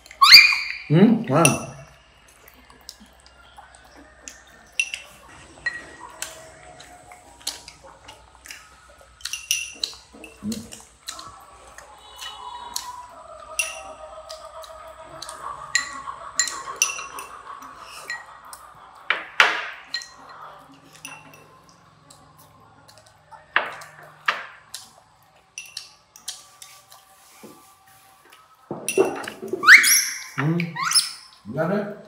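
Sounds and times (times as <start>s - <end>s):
chopsticks clinking on porcelain bowls: 4.7s - 6.0s, 9.2s - 11.3s, 13.6s - 14.4s, 15.2s - 21.6s, 25.5s - 27.0s.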